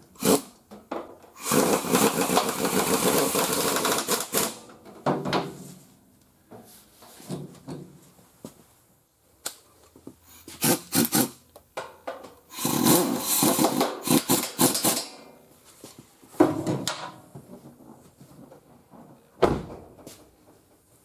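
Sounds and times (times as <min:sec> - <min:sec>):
pneumatic wrench rattling: 0:00.2 - 0:00.5, 0:01.4 - 0:04.6, 0:10.6 - 0:11.4, 0:12.5 - 0:15.1.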